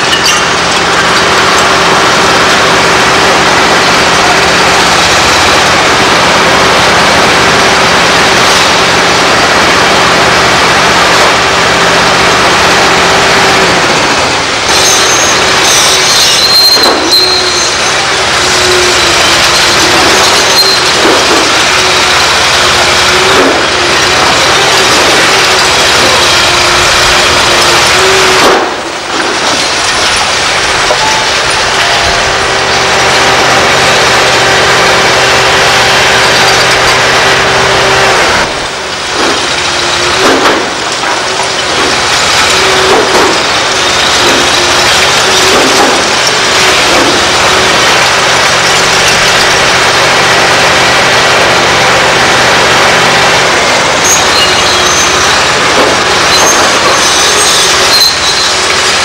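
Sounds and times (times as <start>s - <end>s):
concrete and rubble crashing: 0.0s - 59.0s
excavator diesel engine: 0.0s - 59.0s
sharp crack: 28.1s - 31.5s, 38.4s - 47.6s.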